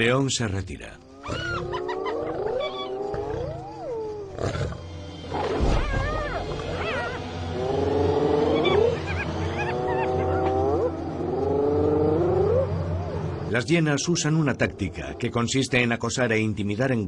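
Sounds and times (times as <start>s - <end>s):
hyenas squealing and whooping: 1.1s - 13.6s
deep lion growl: 1.3s - 12.7s.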